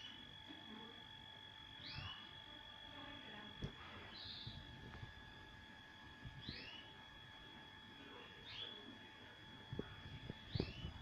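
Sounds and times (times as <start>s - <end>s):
canary chirping: 0.0s - 1.0s, 1.6s - 4.9s, 6.2s - 7.1s, 8.0s - 11.0s.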